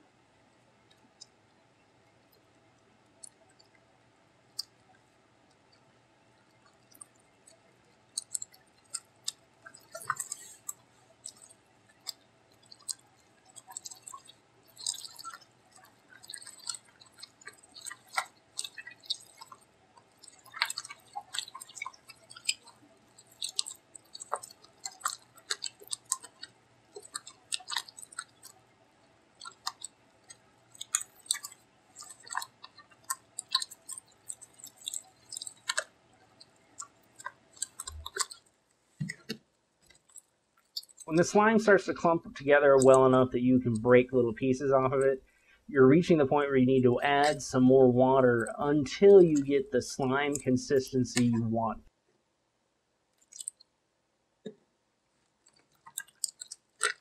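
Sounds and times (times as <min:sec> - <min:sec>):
slime squelching and popping: 0:08.1 - 0:28.6, 0:29.3 - 0:42.1, 0:53.2 - 0:53.7, 0:55.5 - 0:57.0.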